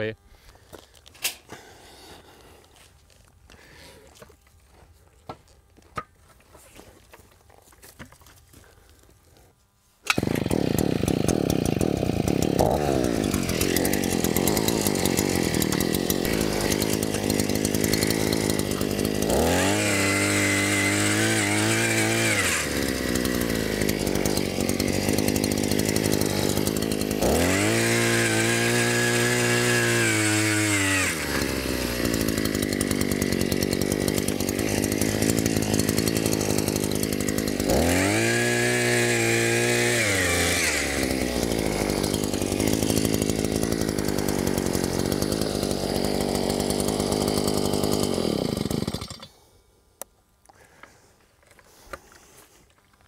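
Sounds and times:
two-stroke engine revving: 10.1 - 49.3.

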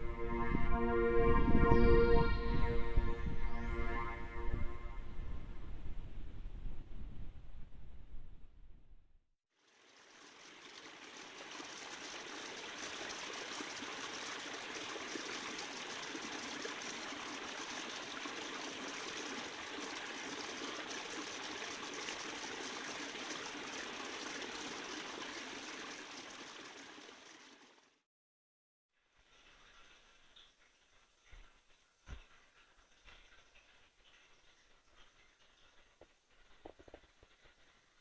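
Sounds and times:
creek trickling: 9.5 - 28.0, 29.1 - 38.0.

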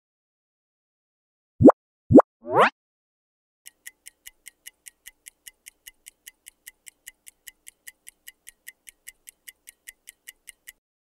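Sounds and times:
clock-like ticking: 3.7 - 10.8.

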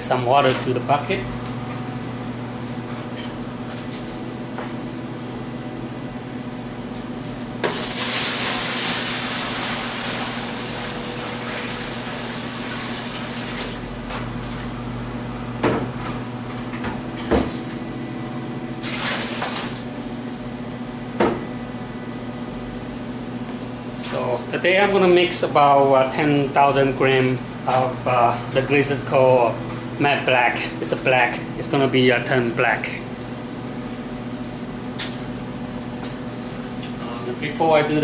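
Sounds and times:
water running into plastic bucket: 7.7 - 13.8.

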